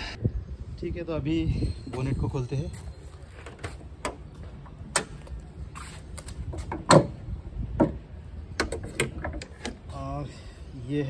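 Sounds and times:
car bonnet latch clicks: 4.9s - 5.2s.

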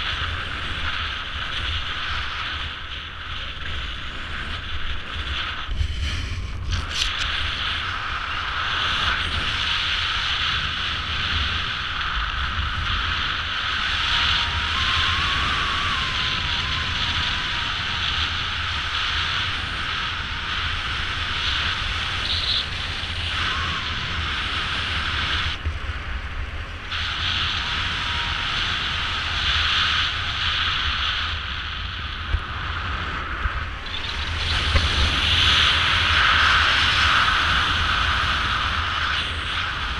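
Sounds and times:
wind noise on microphone: 0.0s - 39.9s.

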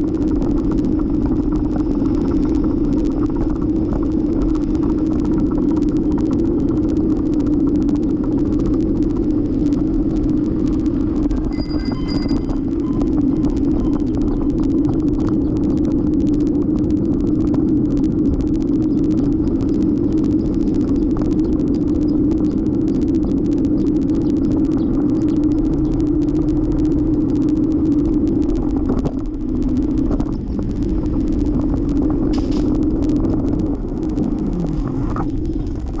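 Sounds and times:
small rattling ticks: 0.0s - 36.0s
bicycle rolling on pavement: 24.8s - 36.0s.

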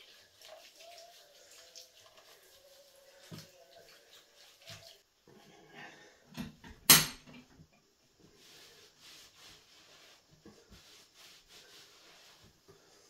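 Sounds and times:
towel rubbing face and hair: 0.0s - 5.0s, 8.3s - 13.0s.

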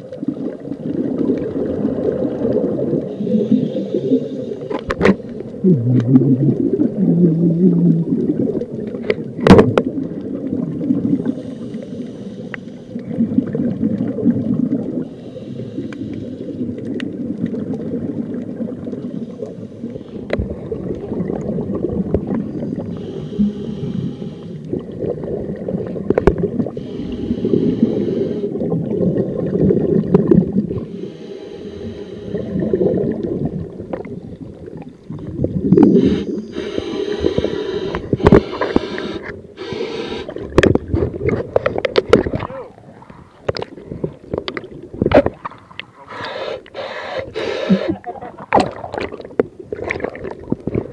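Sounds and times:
exhaled bubbles hissing: 0.0s - 50.9s
muffled underwater breathing rumble: 1.4s - 9.4s, 17.5s - 49.1s.

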